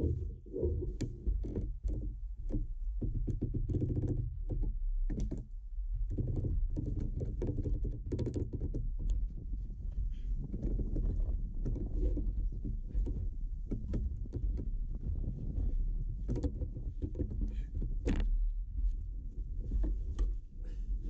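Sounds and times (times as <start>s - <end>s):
steady low rumble: 0.0s - 1.7s, 8.8s - 21.0s.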